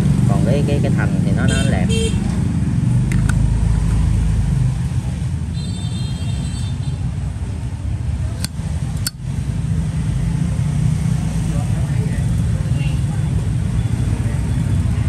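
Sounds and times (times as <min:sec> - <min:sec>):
road traffic rumble: 0:00.0 - 0:15.0
sharp clicks: 0:08.4 - 0:09.2.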